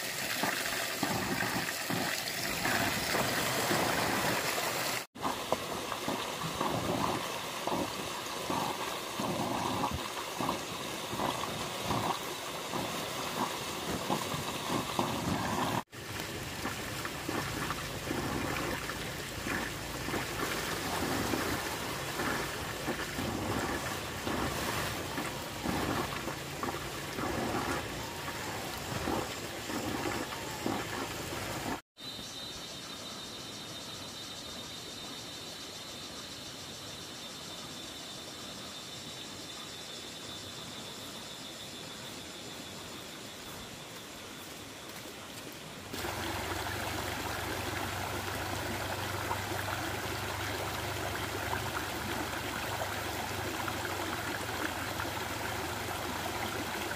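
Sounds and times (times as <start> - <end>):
water trickling and splashing: 0.0 - 31.8, 43.9 - 56.9.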